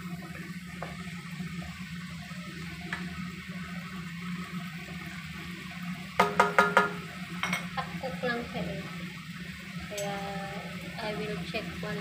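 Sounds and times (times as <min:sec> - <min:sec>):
food sizzling in a pan: 0:00.0 - 0:12.0
spatula knocking against pan: 0:06.2 - 0:07.7.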